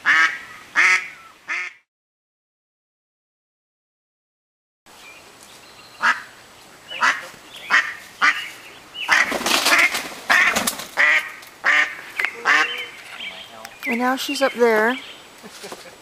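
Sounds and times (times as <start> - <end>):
duck quacking: 0.0 - 1.8, 6.0 - 6.3, 6.9 - 8.5, 9.1 - 13.0.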